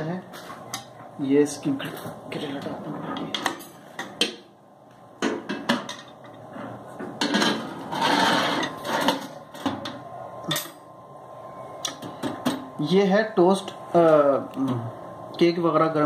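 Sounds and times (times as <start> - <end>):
metal grill rack knocking and scraping: 5.2 - 9.8.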